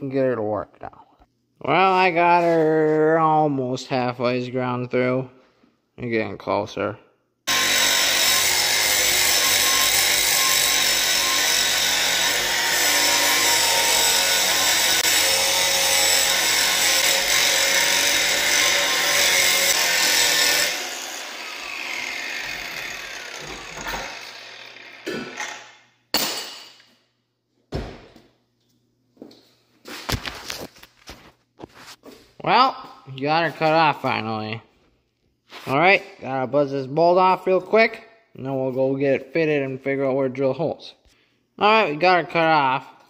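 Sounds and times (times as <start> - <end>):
angle grinder cutting metal: 7.5 - 25.8.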